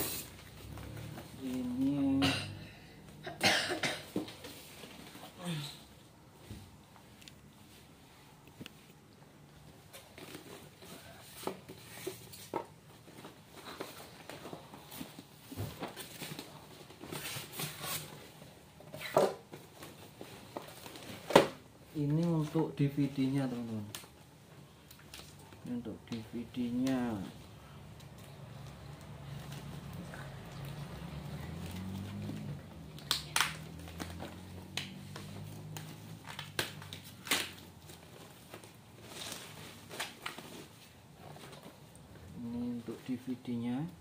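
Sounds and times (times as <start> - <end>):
foam packing rustling: 33.4 - 42.0.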